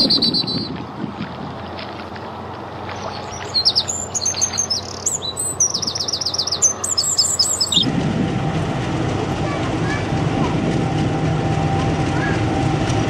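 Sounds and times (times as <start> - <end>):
songbird chirping: 2.9 - 7.9.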